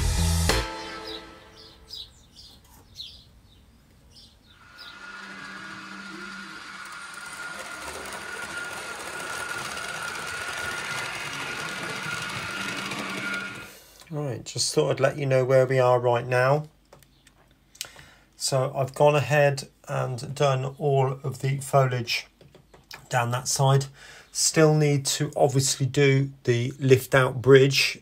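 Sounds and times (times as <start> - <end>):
model train motor whining: 4.6 - 13.8.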